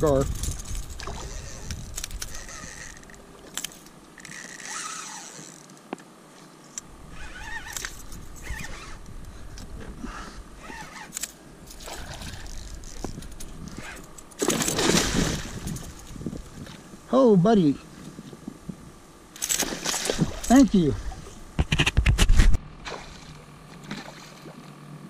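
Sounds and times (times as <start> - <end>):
fishing gear clicks and scrapes: 0.2 - 5.9, 6.7 - 9.7, 10.6 - 14.8, 15.6 - 16.2, 19.4 - 20.6.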